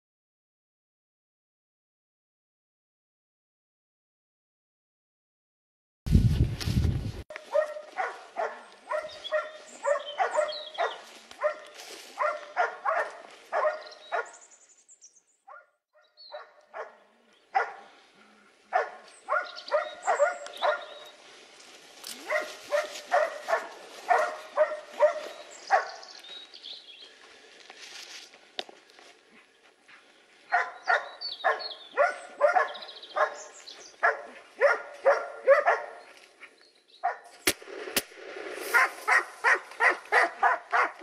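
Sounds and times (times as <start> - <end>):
dogs barking: 7.3 - 14.4, 15.5 - 18.0, 18.7 - 21.2, 22.2 - 26.1, 30.5 - 36.1, 37.0 - 37.3, 38.7 - 41.0
loud gunshot: 37.4 - 38.8.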